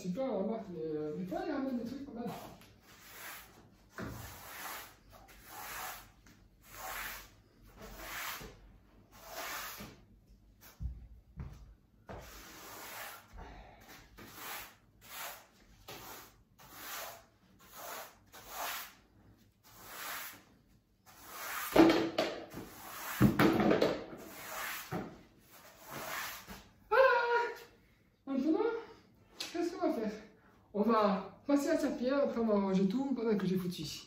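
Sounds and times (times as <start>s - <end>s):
broom sweeping hard floor: 1.3s - 11.0s, 12.1s - 26.8s
broom scraping and knocking: 1.4s - 10.0s, 21.1s - 26.7s.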